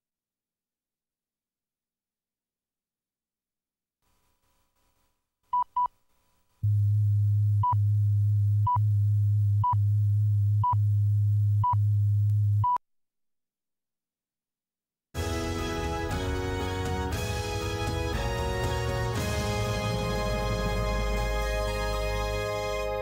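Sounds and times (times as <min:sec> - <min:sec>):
low hum with hiss: 0:06.6 - 0:12.7.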